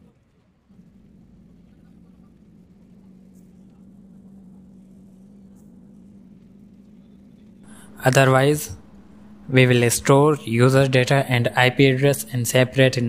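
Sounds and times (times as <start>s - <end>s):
faint low hum: 0.0s - 13.0s
background hiss: 7.6s - 13.0s.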